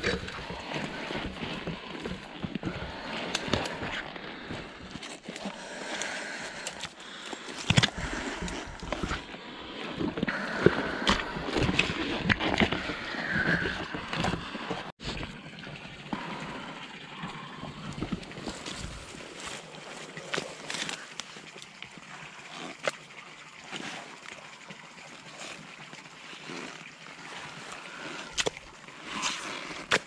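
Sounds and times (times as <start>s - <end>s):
boots squelching in mud: 18.0s - 21.7s
twigs cracking underfoot: 18.4s - 21.7s.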